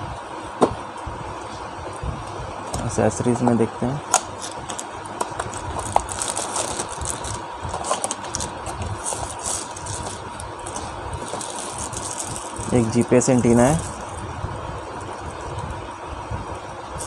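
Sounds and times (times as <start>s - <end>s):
steady low hum: 0.0s - 17.0s
plastic bags crinkling: 4.2s - 14.3s.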